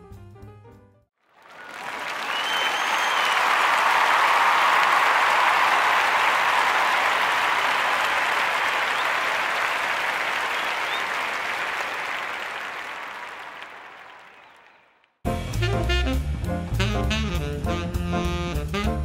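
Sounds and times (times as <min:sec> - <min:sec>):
crowd applause: 0:01.2 - 0:15.2.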